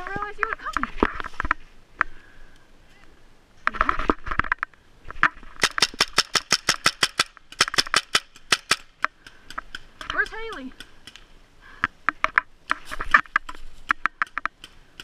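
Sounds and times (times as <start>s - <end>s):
paintball marker firing rapid shots: 5.6s - 8.9s.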